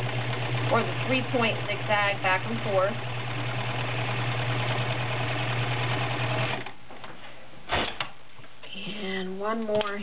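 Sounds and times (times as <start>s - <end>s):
sewing machine running: 0.0s - 6.7s.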